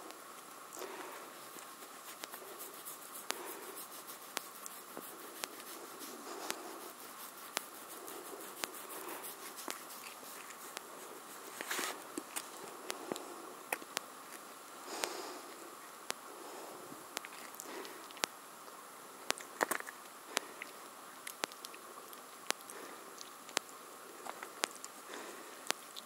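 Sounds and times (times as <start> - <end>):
sharp clicks: 22.5 - 22.8.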